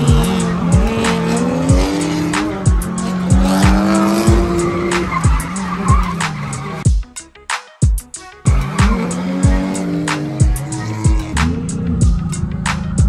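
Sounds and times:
car engines revving: 0.0 - 6.8, 8.4 - 13.0
tyres squealing: 0.0 - 6.8
music with deep bass beat: 0.0 - 13.0.

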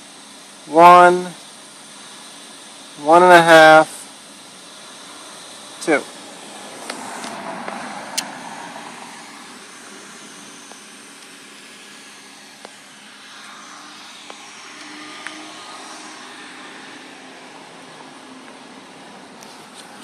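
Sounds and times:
outdoor background noise: 0.0 - 20.0
camera handling rustle: 19.4 - 20.0.

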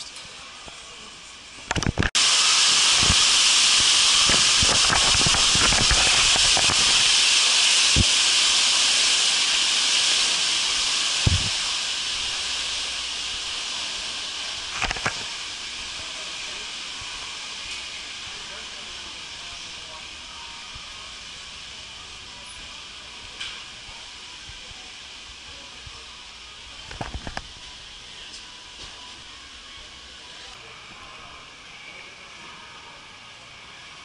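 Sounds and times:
loud rushing hiss: 1.0 - 30.8.

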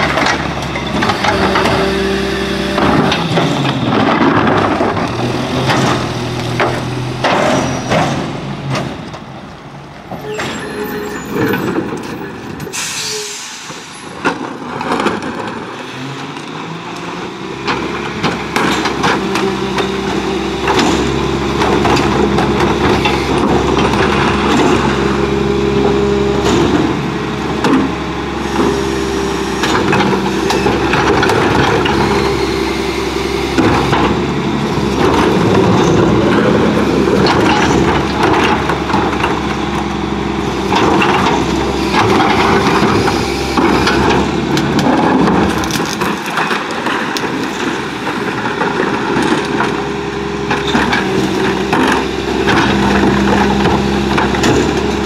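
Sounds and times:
truck diesel engine running: 0.0 - 10.3, 15.9 - 55.0
carts knocking and clattering: 2.7 - 12.8, 17.6 - 55.0
air brake hiss: 12.6 - 14.1.

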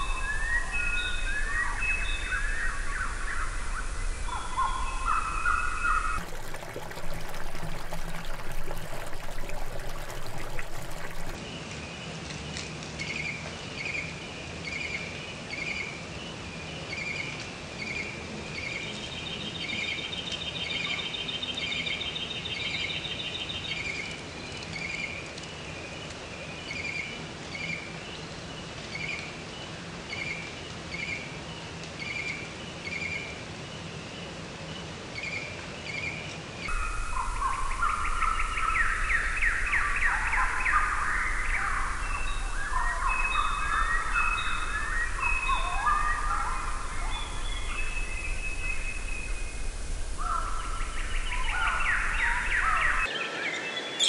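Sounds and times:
varied birdsong: 0.0 - 11.4, 33.8 - 54.0.

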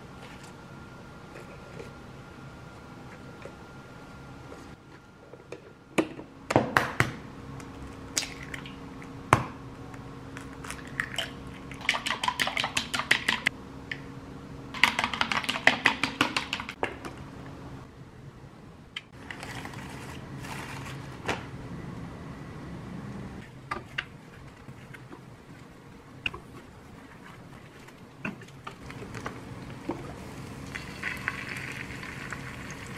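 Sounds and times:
egg sizzling in a pan: 30.2 - 32.9.

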